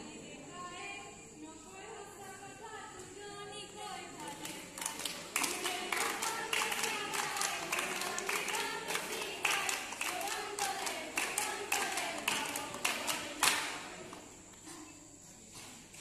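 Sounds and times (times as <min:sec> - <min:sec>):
girls singing together: 0:00.0 - 0:14.5
hands clapping: 0:04.2 - 0:14.6.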